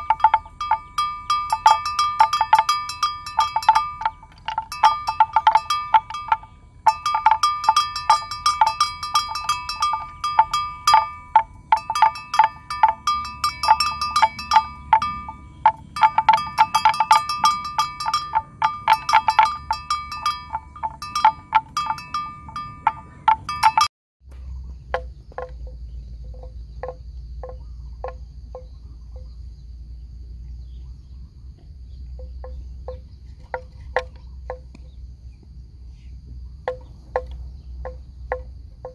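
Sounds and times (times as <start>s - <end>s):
bells clanking: 0.0s - 23.9s, 24.8s - 29.6s
faint high insect drone: 0.0s - 38.9s.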